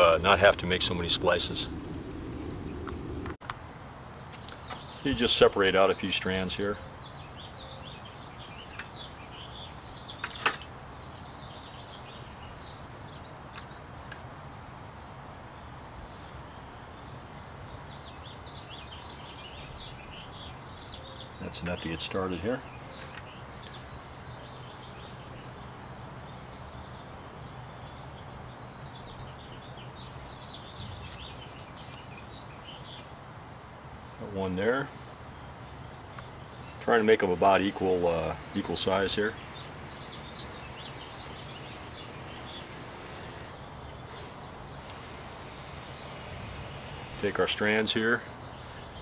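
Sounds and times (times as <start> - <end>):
faint chirping: 0.0 - 3.4, 34.2 - 49.0
steady low hum: 0.0 - 4.0.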